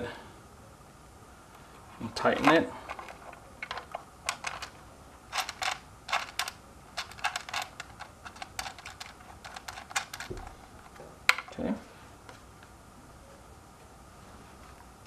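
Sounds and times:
plastic and metal parts clicking: 0:02.4 - 0:11.6.

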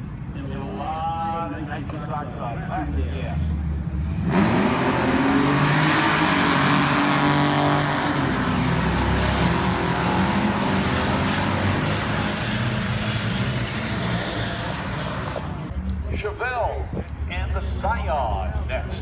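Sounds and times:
drag racing cars launching: 0:03.6 - 0:16.0.

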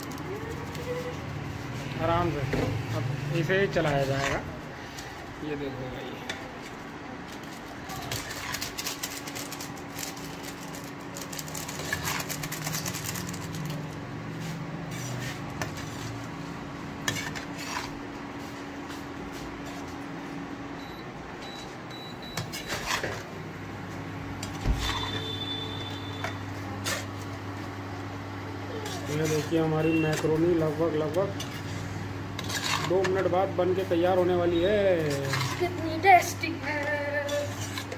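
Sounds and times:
metal spatula scraping frying pan: 0:32.4 - 0:33.2.

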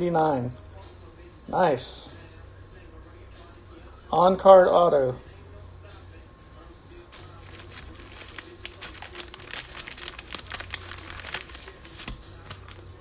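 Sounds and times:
plastic sleeve crinkling: 0:07.1 - 0:13.0.

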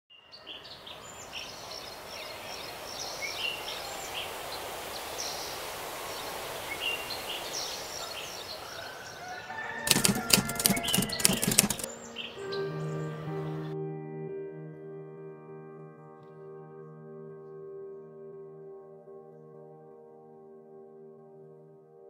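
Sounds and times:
open-air hiss: 0:00.4 - 0:12.0
rapid wing flapping: 0:09.8 - 0:11.9
small birds chirping: 0:10.0 - 0:13.0.

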